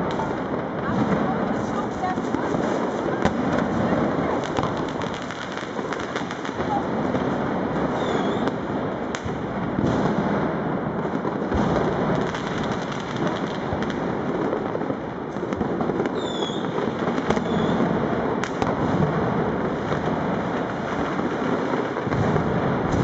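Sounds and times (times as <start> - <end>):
firecrackers and fireworks crackling: 0.0 - 23.0
firework whistles: 7.9 - 8.6, 16.1 - 16.8, 17.4 - 17.8.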